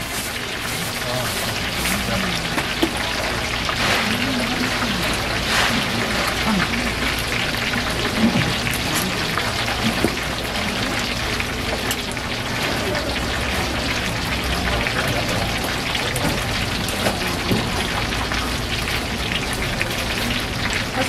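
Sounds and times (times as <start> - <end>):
oil crackling and sizzling: 0.0 - 21.0.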